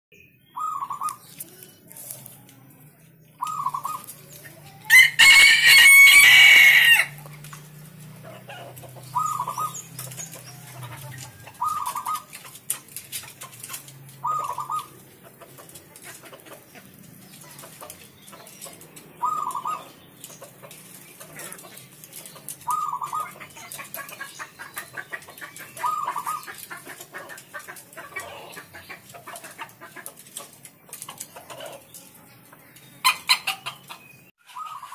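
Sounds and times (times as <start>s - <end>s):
dove cooing: 0.6s - 1.4s, 3.4s - 7.0s, 8.2s - 20.0s, 20.6s - 30.0s, 33.0s - 34.9s
rooster crowing: 4.9s - 7.2s.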